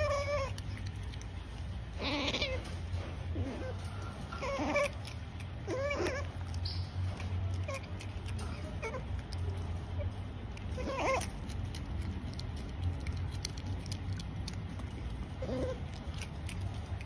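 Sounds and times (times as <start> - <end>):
otter calls while eating: 1.9 - 2.8, 3.4 - 9.4, 10.6 - 17.0.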